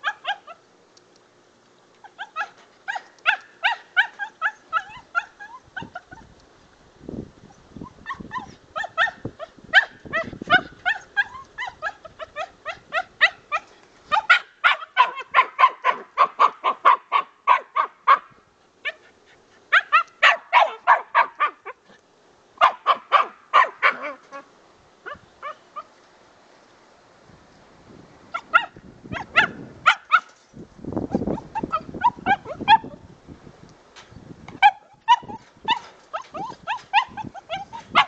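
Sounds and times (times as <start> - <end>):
puppy yapping: 0.0 - 0.6, 2.0 - 6.3, 8.0 - 19.1, 19.7 - 21.8, 22.6 - 25.9, 28.3 - 30.4, 31.1 - 33.0, 34.6 - 38.0.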